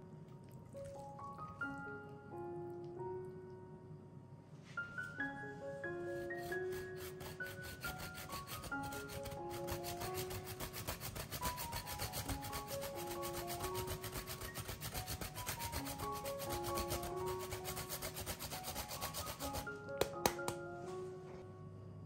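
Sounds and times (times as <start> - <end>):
cheese grater scraping: 6.2 - 19.7.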